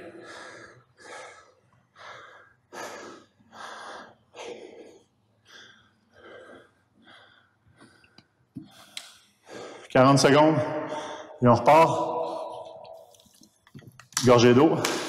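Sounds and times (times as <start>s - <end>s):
man gasping for breath: 0.0s - 8.9s.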